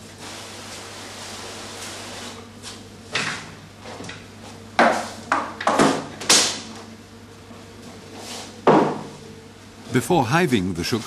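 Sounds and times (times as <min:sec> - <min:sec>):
steady low hum: 0:02.3 - 0:11.0.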